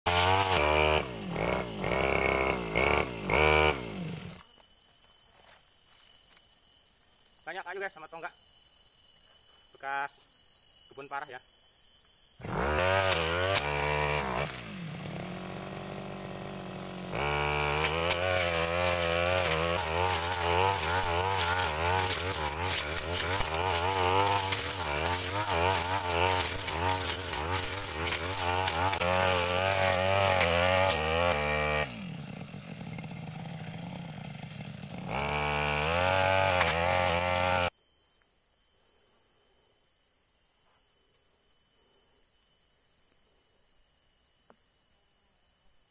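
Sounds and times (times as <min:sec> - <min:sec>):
brush cutter engine revving: 0:00.1 - 0:04.4, 0:12.4 - 0:37.7
crickets chirping: 0:01.2 - 0:45.9.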